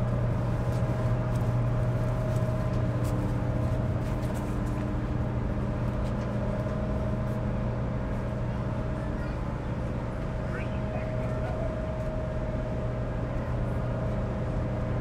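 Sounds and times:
ferry engines low drone: 0:00.0 - 0:15.0
faint higher hum tones: 0:06.4 - 0:15.0.

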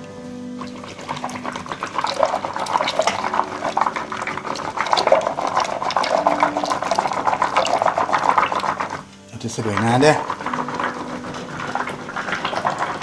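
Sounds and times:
stick sloshing fruit in water: 0:00.7 - 0:09.0.

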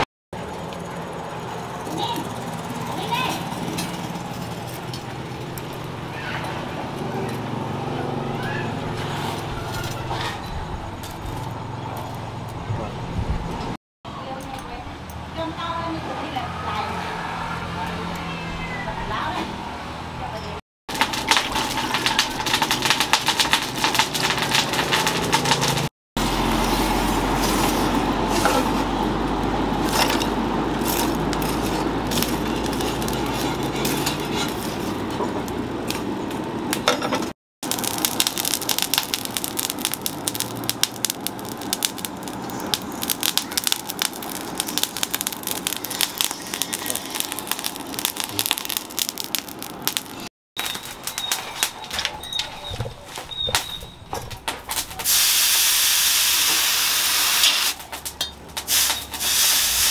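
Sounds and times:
forge fire crackling and popping: 0:20.9 - 0:36.8, 0:37.6 - 0:59.9.

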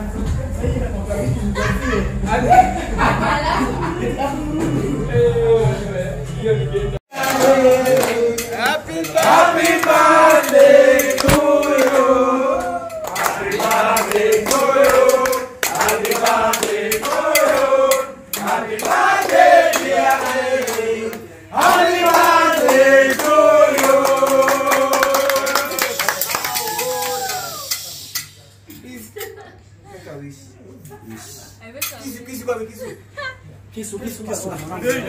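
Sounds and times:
men singing together: 0:04.2 - 0:25.8
hand clapping: 0:07.2 - 0:12.1, 0:12.9 - 0:27.9.

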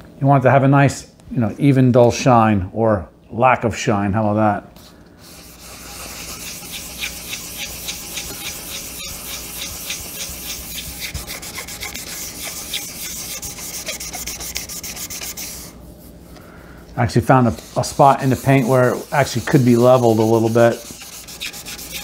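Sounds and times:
hand sanding painted metal: 0:05.2 - 0:16.2, 0:17.1 - 0:22.0.

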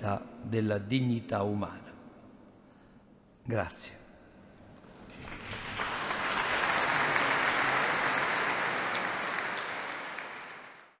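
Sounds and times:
crowd applauding: 0:05.1 - 0:11.0.

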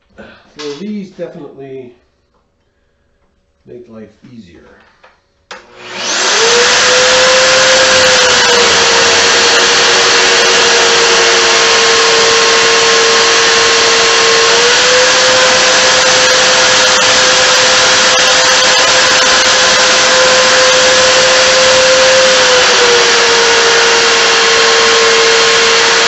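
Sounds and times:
drill press motor whining: 0:05.5 - 0:26.0.

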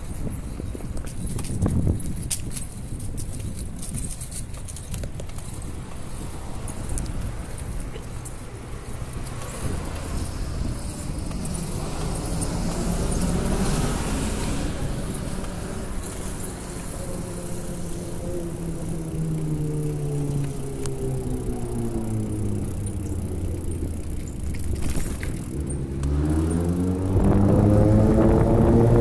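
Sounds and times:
steady low traffic rumble: 0:00.0 - 0:29.0
car passing: 0:05.4 - 0:29.0
passing engine note rising and falling: 0:08.8 - 0:29.0.

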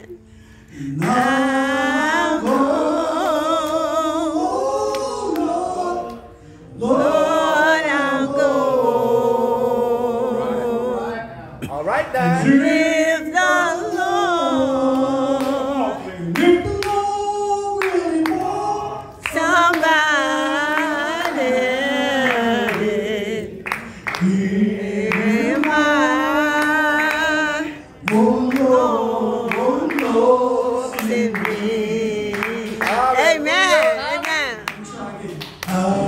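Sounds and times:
man singing into microphone: 0:12.2 - 0:23.3.

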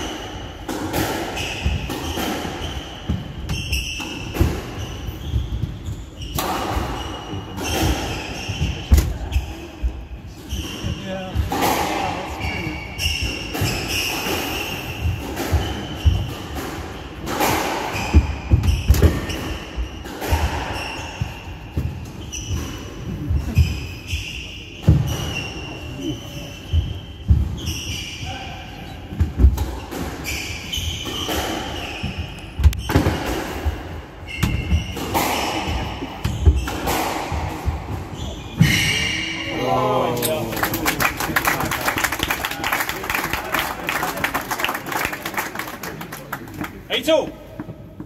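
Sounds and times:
squash ball hitting rackets and walls: 0:00.0 - 0:39.5
shoe squeaks: 0:01.3 - 0:11.4, 0:12.3 - 0:33.0, 0:34.2 - 0:39.5.

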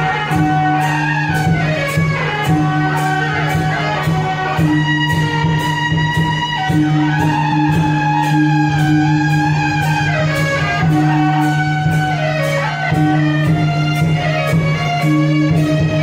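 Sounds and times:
regular beat: 0:00.0 - 0:16.0
sliding melody: 0:00.0 - 0:16.0.

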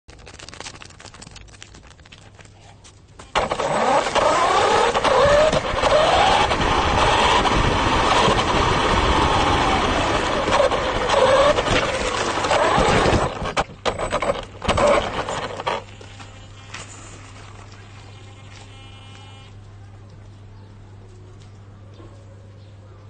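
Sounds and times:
tyres on rough road: 0:00.1 - 0:19.7
radio-controlled car motor whine: 0:03.3 - 0:19.6.

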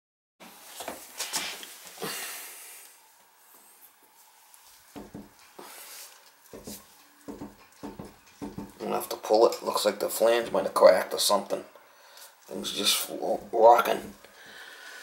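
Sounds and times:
knocks: 0:05.0 - 0:05.4, 0:06.6 - 0:08.8.

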